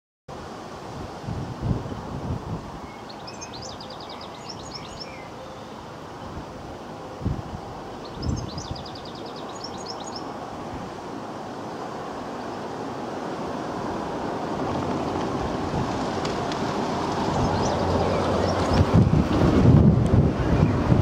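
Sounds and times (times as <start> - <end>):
wind buffeting microphone: 0.8 - 5.2, 6.2 - 21.0
steam locomotive approaching: 10.2 - 21.0.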